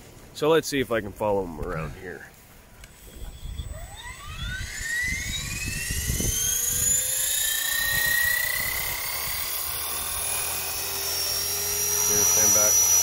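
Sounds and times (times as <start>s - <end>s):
rc helicopter rotor whine: 2.8s - 13.0s.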